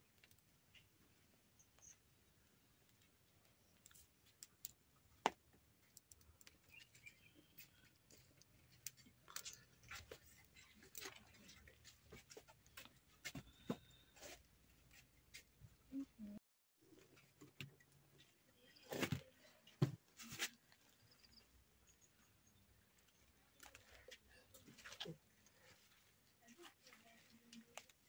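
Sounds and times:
bird chirping faintly: 6.0 - 8.4.

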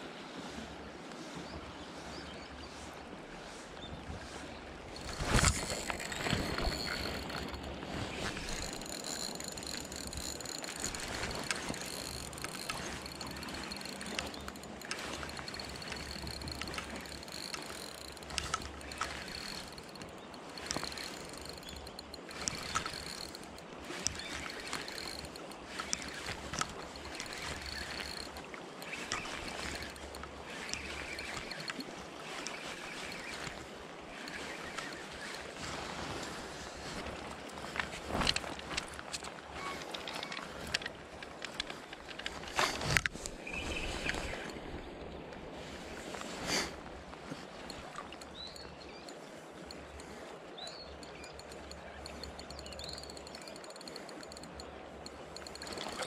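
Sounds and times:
wind: 0.0 - 56.0
river water flowing: 4.4 - 56.0
fishing reel whining: 4.9 - 35.8, 47.5 - 56.0
small reel clicks: 4.9 - 45.4, 47.2 - 56.0.

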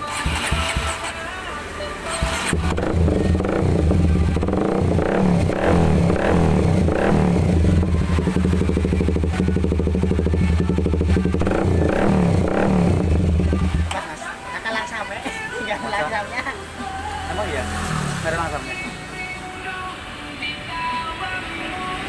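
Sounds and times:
motorcycle engine revving: 0.0 - 1.4, 2.0 - 14.0, 16.7 - 19.3
motorcycle engine idling: 0.0 - 14.2.

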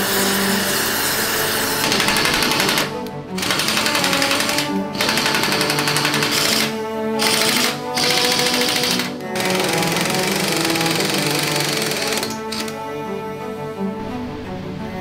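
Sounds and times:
background music: 0.0 - 15.0
impact wrench hammering bolts: 1.3 - 12.7.

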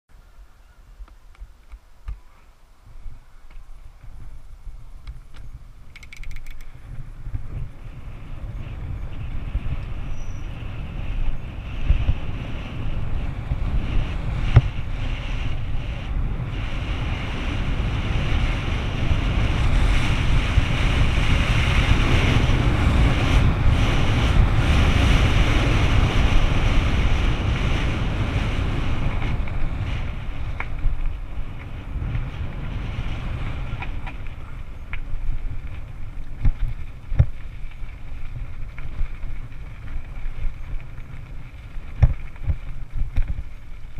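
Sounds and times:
wind buffeting microphone: 0.9 - 43.9.

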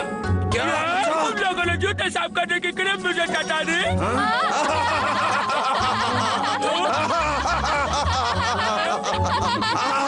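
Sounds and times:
background music: 0.0 - 10.0
cartoon voices laughing: 3.8 - 10.0.

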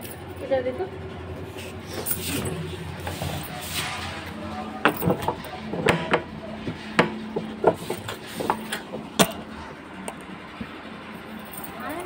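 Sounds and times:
sharp knocks and taps: 4.9 - 9.4.

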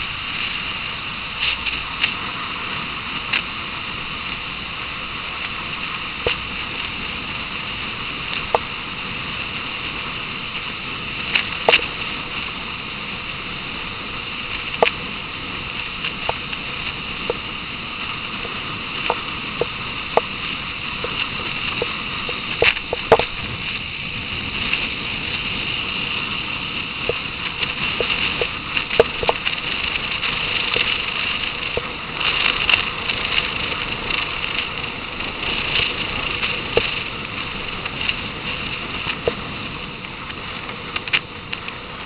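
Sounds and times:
motorcycle wind and road noise: 0.0 - 42.0
sharp clicks and knocks: 22.6 - 23.4.

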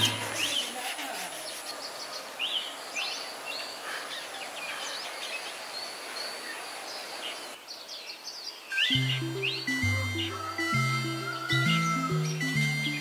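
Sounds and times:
birds chirping: 0.0 - 13.0
thin high tone: 8.9 - 13.0
music with low bass notes: 9.0 - 13.0.

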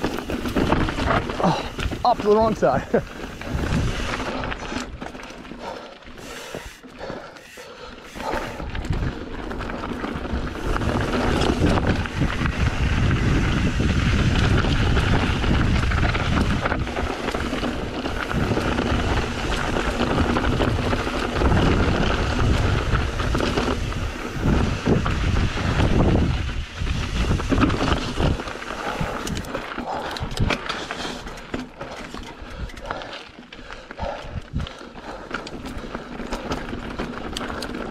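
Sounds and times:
wind buffeting microphone: 0.0 - 5.7, 8.2 - 30.7, 34.0 - 35.2
bike knocking and rattling: 0.0 - 37.9
tyres rumbling over gravel: 0.0 - 37.9.

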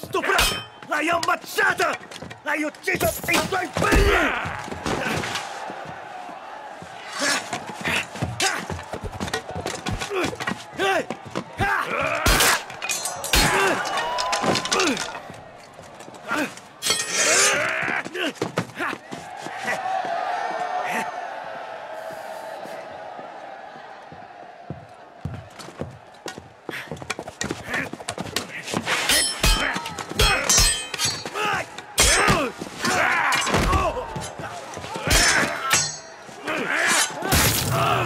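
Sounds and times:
metal weapons clanging: 0.2 - 2.1, 12.3 - 15.3, 16.8 - 17.6, 28.9 - 34.4, 35.0 - 38.0
fighters grunting and crying out: 10.0 - 15.2, 29.1 - 38.0.

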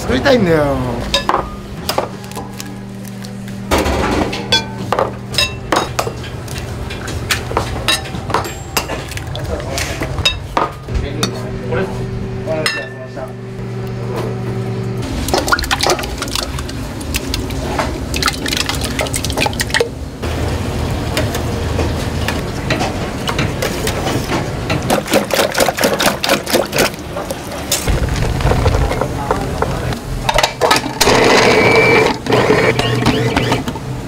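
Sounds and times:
eggs splashing into metal pot: 15.2 - 19.9
food processor motor humming: 31.0 - 33.8.

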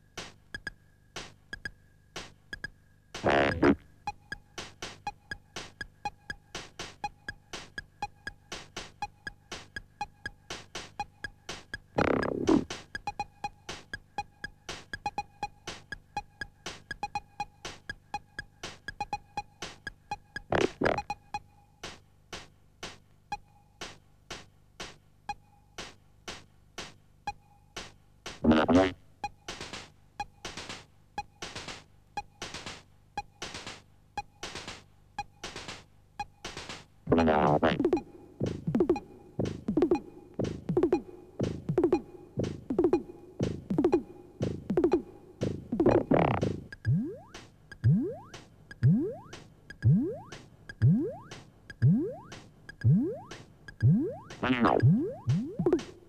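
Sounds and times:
ticking drum machine clicks: 0.0 - 56.0
short pitched synth blips: 3.2 - 3.8, 51.9 - 55.8.

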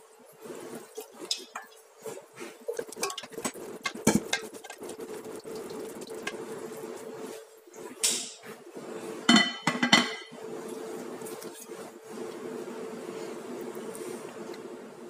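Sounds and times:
bowl clinking on pot: 9.3 - 10.3.

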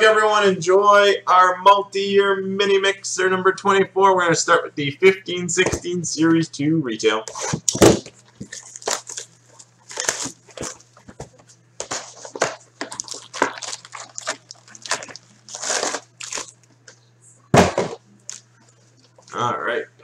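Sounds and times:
cardboard and wrappers rustling: 7.4 - 16.7.

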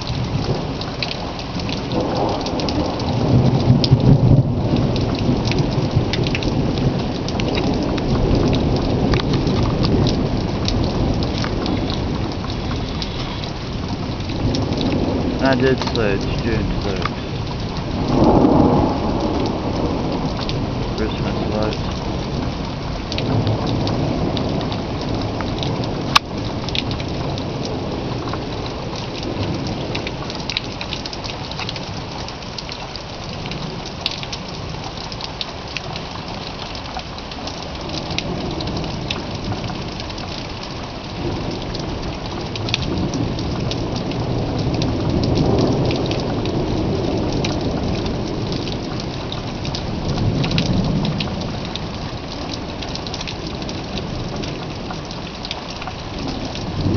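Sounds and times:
raindrops ticking: 0.0 - 56.9
steady rain: 0.0 - 56.9
thunder rumbling: 1.6 - 32.0, 41.2 - 54.9, 56.1 - 56.9.

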